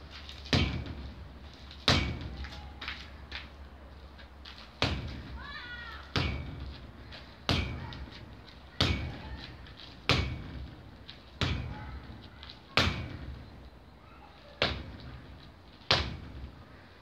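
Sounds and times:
punches thudding on striking pad: 0.5 - 1.0, 1.9 - 2.4, 4.8 - 5.2, 6.1 - 6.6, 7.5 - 8.0, 8.8 - 9.3, 10.1 - 10.6, 11.4 - 12.1, 12.8 - 13.2, 15.9 - 16.4.

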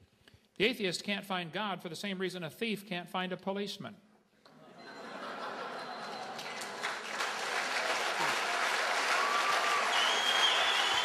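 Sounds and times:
large audience applauding: 5.6 - 11.0.

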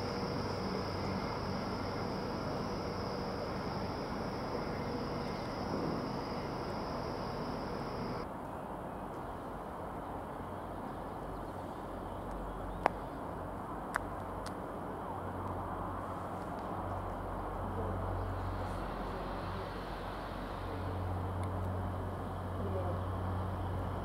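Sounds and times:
thin high whine: 0.0 - 8.2
steady hum: 0.0 - 8.3.

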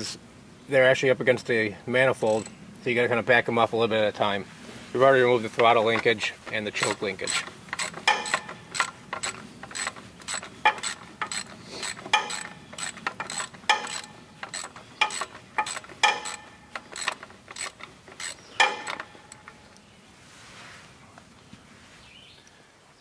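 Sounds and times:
wrench clinking against bolt: 2.2 - 2.5, 6.8 - 19.6.

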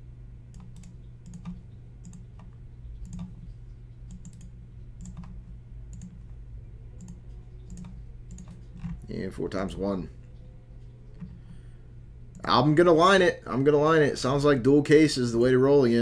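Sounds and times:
steady low hum: 0.0 - 16.0
keyboard and mouse clicks: 0.5 - 6.4, 7.0 - 9.1.

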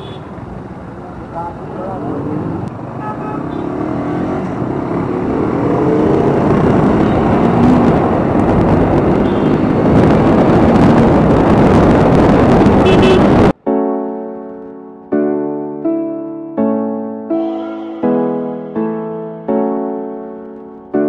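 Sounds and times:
road and traffic noise: 0.0 - 13.6
motorcycle engine: 1.9 - 13.5
wind rushing over microphone: 4.4 - 13.6.

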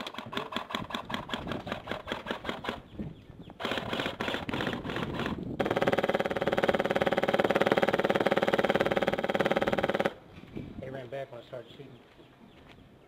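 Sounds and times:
airsoft gun rapid fire: 0.0 - 2.8, 3.6 - 10.2.

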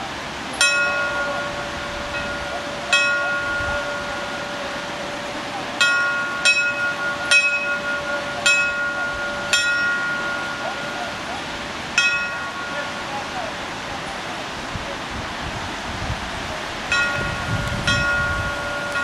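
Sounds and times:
river rushing: 0.0 - 19.0
bell ringing: 0.6 - 11.4, 12.0 - 13.5, 16.9 - 19.0.

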